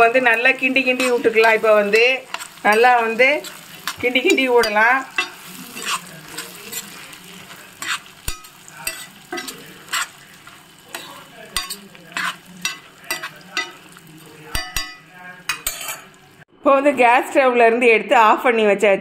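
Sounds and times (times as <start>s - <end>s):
metal spoon scraping frying pan: 0.0s - 16.4s
frying sizzle: 0.0s - 16.5s.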